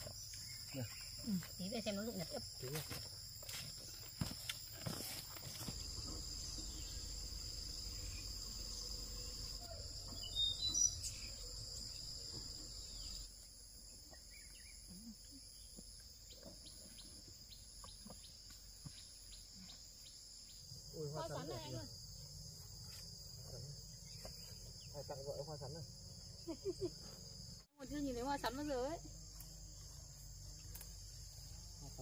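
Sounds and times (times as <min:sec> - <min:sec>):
insects droning: 0:00.0 - 0:32.0
bird chirps: 0:07.8 - 0:13.3.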